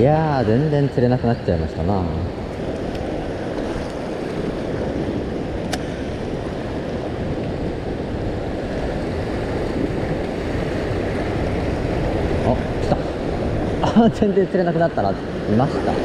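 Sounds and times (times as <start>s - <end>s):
sea waves washing: 0.0s - 16.0s
wind on microphone: 0.0s - 16.0s
sharp click: 5.6s - 5.9s.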